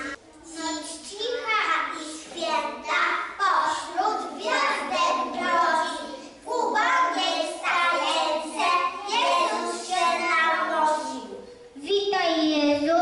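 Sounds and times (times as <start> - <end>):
children singing a carol: 2.2 - 11.2.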